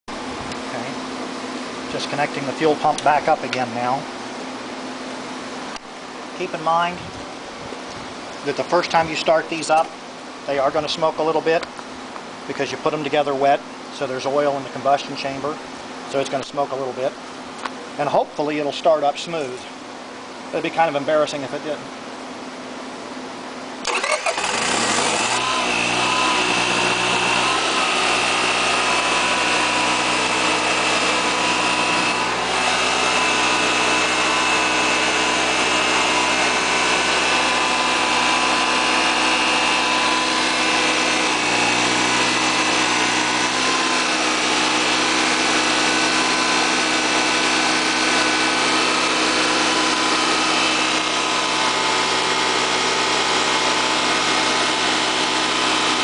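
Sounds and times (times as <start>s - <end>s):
generator engine running: 0.1s - 14.9s, 23.4s - 56.0s
high whine: 24.7s - 56.0s.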